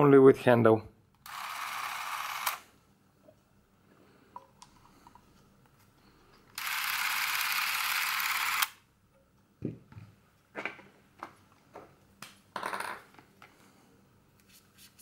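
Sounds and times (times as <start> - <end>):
camera motor whirring: 1.2 - 2.7, 6.6 - 8.8.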